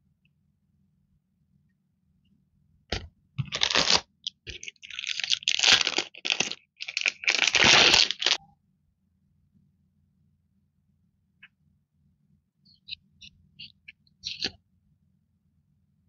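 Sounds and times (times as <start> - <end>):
plastic sleeves crinkling: 3.4 - 8.4.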